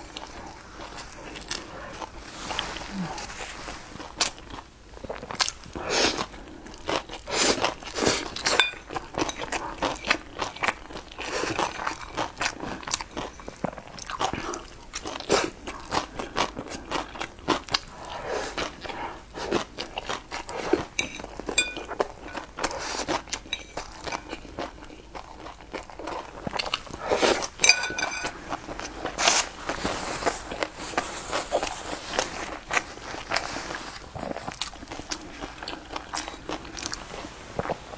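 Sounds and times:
chewing with wet smacks: 0:04.0 - 0:29.2, 0:31.5 - 0:37.9.

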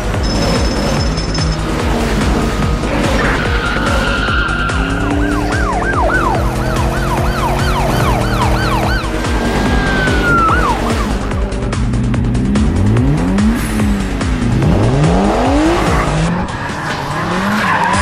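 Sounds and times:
police siren: 0:03.4 - 0:11.5.

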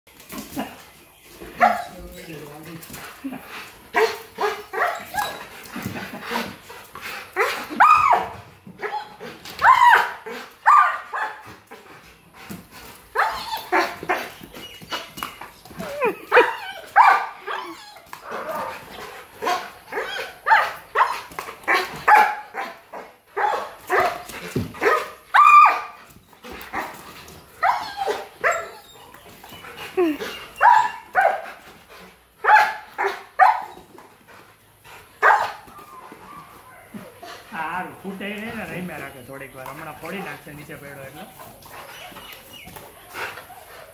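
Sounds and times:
dogs barking: 0:01.5 - 0:02.0, 0:03.9 - 0:05.3, 0:07.4 - 0:11.5, 0:16.3 - 0:26.0, 0:30.6 - 0:31.6, 0:32.4 - 0:33.8, 0:35.2 - 0:35.7.

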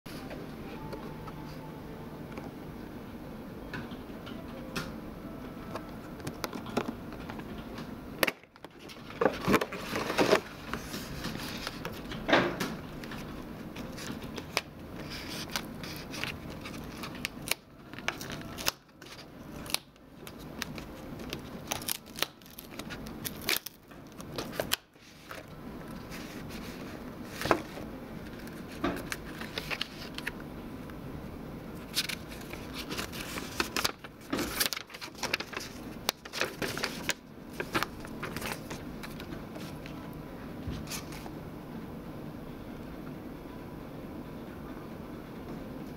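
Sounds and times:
card and paper rustling: 0:08.6 - 0:12.2, 0:13.0 - 0:30.4, 0:31.8 - 0:40.1.

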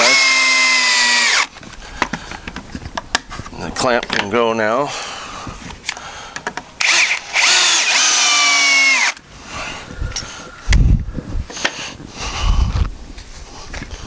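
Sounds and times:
cordless drill driving a screw: 0:00.0 - 0:01.6, 0:06.8 - 0:09.2.

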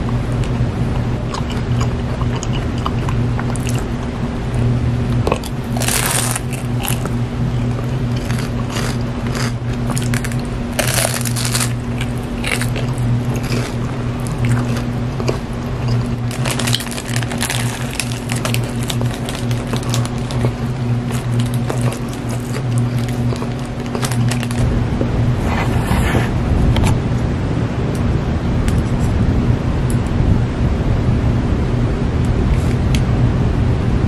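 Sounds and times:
crunchy bites and chewing: 0:00.0 - 0:25.1
steady low hum: 0:00.0 - 0:34.0.

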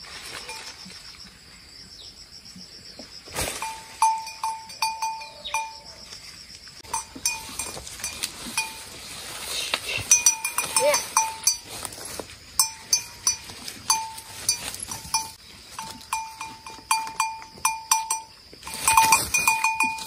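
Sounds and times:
insects chirping: 0:00.0 - 0:20.0
goat bell clinking: 0:03.6 - 0:06.0, 0:06.8 - 0:09.2, 0:09.9 - 0:20.0.

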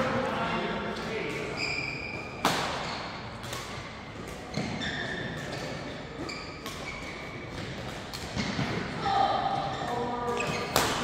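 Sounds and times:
court shoes squeaking: 0:00.9 - 0:11.0
badminton racket hitting shuttlecock: 0:02.3 - 0:08.8.

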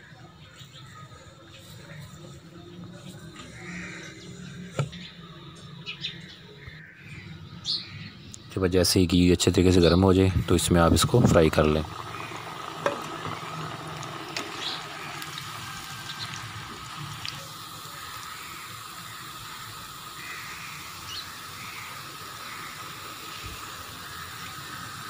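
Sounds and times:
fat sizzling and bubbling: 0:10.4 - 0:25.0.

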